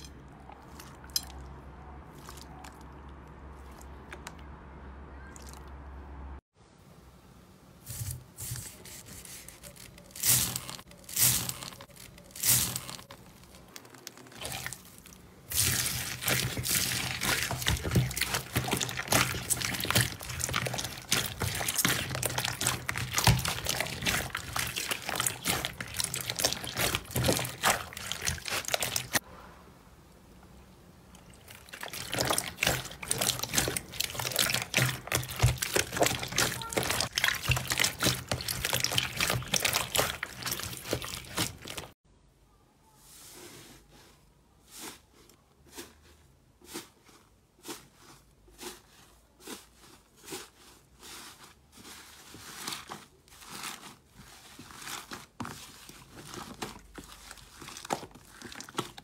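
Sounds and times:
hands squishing slime: 7.9 - 29.2, 31.2 - 42.0, 48.6 - 59.0.

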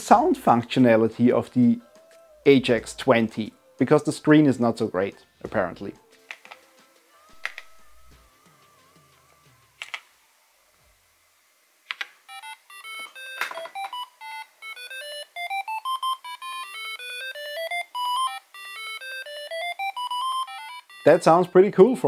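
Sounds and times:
rising electronic beeps: 12.3 - 21.6.

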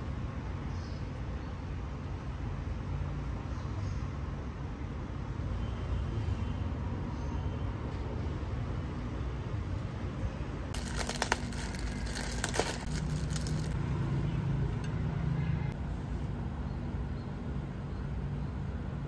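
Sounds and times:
crinkling from handling food: 10.7 - 13.8.

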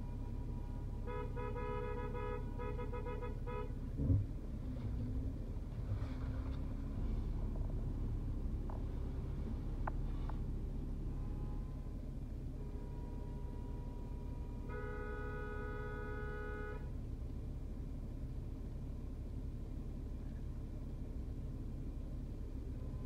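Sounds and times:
car horn honking: 0.0 - 4.0, 11.0 - 17.0
car and traffic rumble: 0.0 - 23.0.

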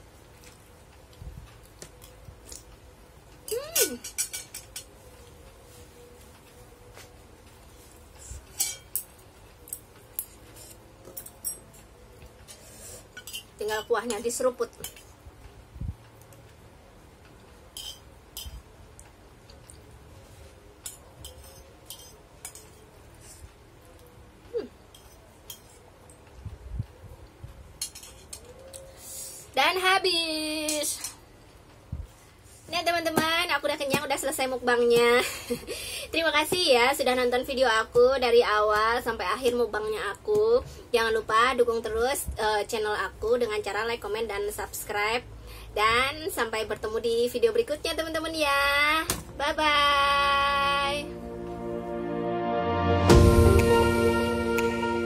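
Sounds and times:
chewing and cutlery clicks: 8.6 - 12.6, 17.3 - 19.9, 20.8 - 22.9, 24.9 - 26.3, 27.8 - 28.9
short falling tone: 51.1 - 55.0.

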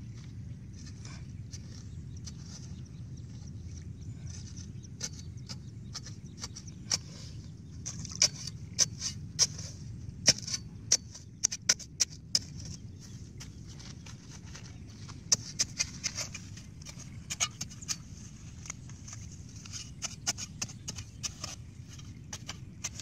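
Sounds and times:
metal spade chopping wet soil: 7.8 - 23.0.

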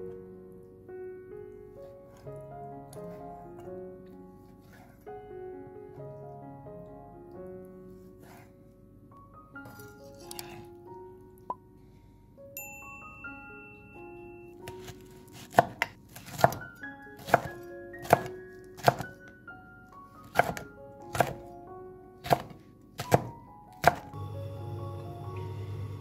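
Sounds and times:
background music: 0.0 - 26.0
knife chopping on wooden board: 14.7 - 16.6, 17.2 - 19.1, 20.2 - 21.4, 22.2 - 24.1.

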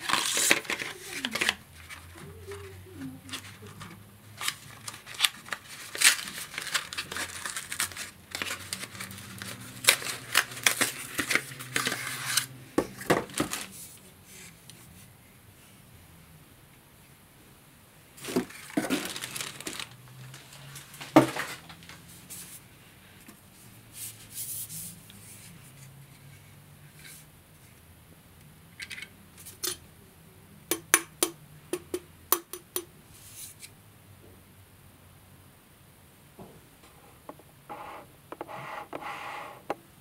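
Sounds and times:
cardboard and plastic wrap rustling: 0.0 - 14.6, 18.2 - 22.6.

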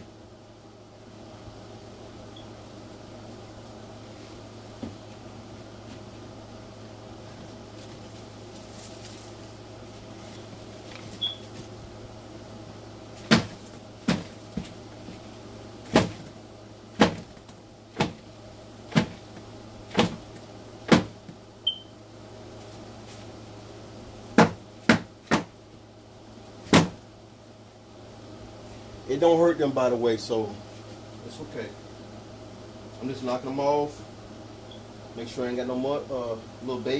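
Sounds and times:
steady low hum: 0.0 - 36.9
egg crates knocking against bin: 13.2 - 15.2, 15.8 - 18.3, 18.9 - 21.4, 24.4 - 25.6, 26.6 - 27.0.

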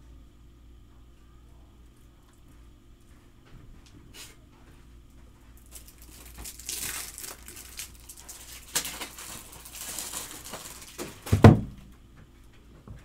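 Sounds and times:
card packaging rustling and scraping: 5.6 - 11.4
loud thump of object set down: 11.3 - 11.8.

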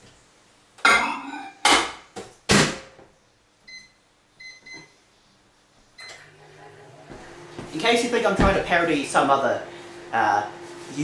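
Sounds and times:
microwave keypad beeps: 3.7 - 4.9.

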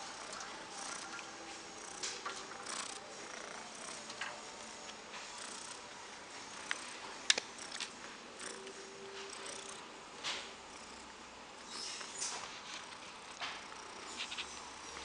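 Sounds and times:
soft rustling: 11.9 - 15.0.

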